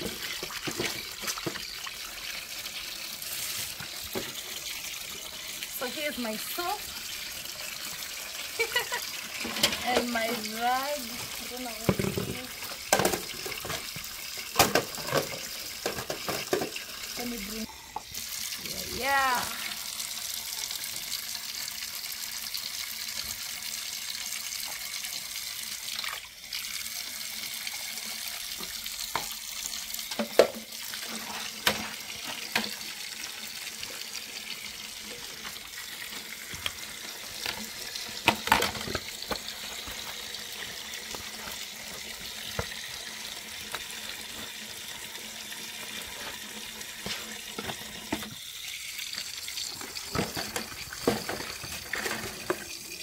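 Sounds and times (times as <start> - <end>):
tap water running into a basin: 0.0 - 53.0
dishes knocking and clinking: 11.9 - 13.9, 14.6 - 16.8, 30.1 - 30.7, 38.2 - 39.4.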